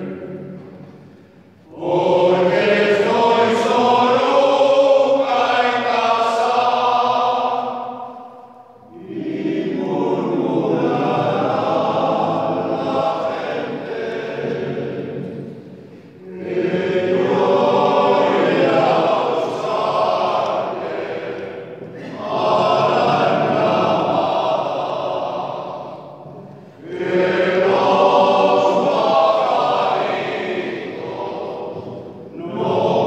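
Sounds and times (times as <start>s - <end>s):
men's choir singing: 0.0s - 33.0s.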